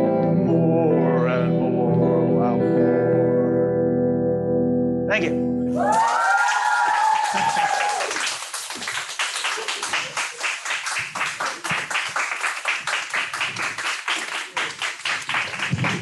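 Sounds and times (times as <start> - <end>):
audience clapping: 5.8 - 16.0.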